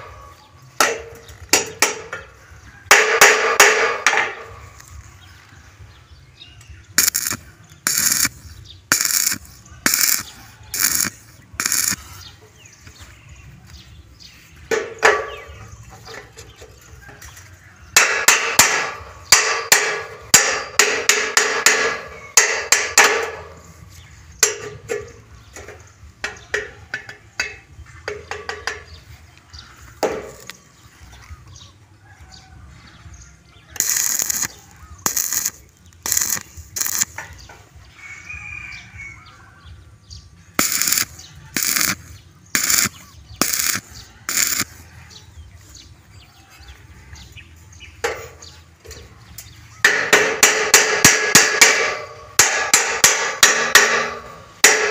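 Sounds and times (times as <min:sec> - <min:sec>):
hammer striking steel tube: 0:00.8 - 0:02.3, 0:02.9 - 0:04.6, 0:18.0 - 0:23.6, 0:49.8 - 0:54.9.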